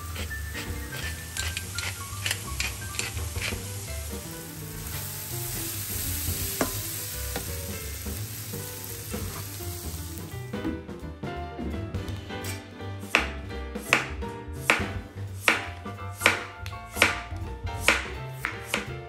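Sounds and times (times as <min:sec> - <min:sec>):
wooden spatula stirring: 0:00.0 - 0:03.9
vegetables sizzling in a frying pan: 0:00.0 - 0:10.4.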